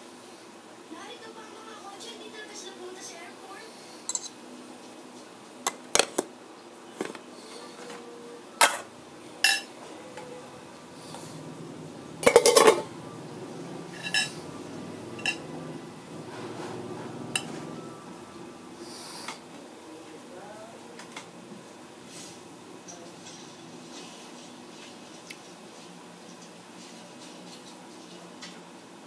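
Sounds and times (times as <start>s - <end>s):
cutlery clinking on plate: 8.6s - 9.7s, 12.2s - 12.9s, 14.0s - 14.4s.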